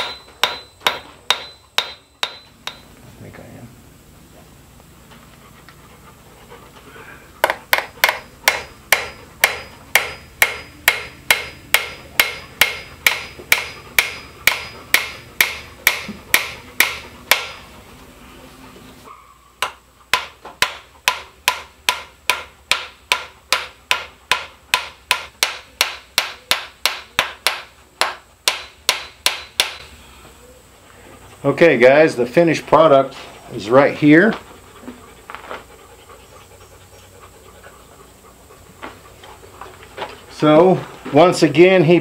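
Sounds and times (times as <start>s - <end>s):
hammer striking metal: 0.0s - 2.9s, 7.4s - 17.6s, 19.6s - 29.9s.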